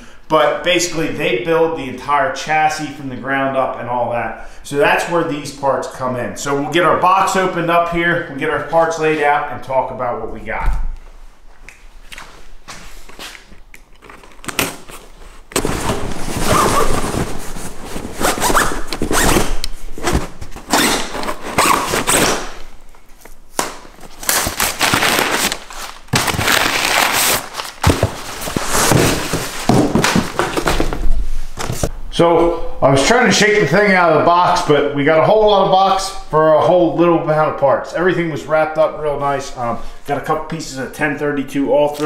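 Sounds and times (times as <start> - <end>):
packing paper rustling: 13.8 - 31.0
cardboard box thumping: 27.8 - 31.0.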